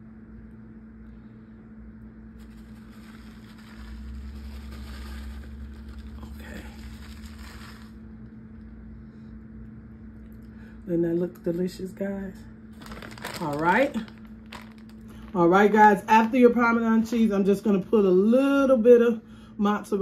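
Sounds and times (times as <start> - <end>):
steady low hum: 0.0 - 20.0
plastic bag rustling: 2.3 - 8.2, 12.7 - 15.6.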